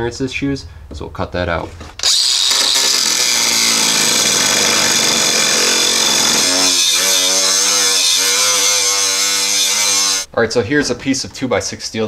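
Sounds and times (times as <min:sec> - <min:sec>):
angle grinder grinding steel: 0:02.0 - 0:10.3.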